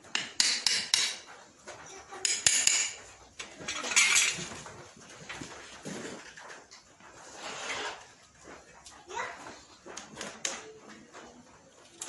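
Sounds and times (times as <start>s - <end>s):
hammer tapping metal horseshoe: 0.0s - 1.4s, 2.2s - 3.1s.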